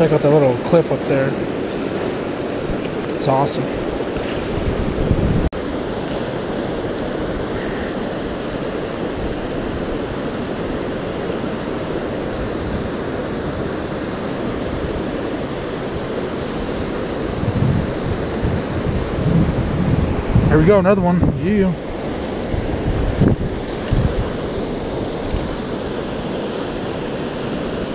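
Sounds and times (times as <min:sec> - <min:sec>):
whitewater rushing over rapids: 0:00.0 - 0:27.9.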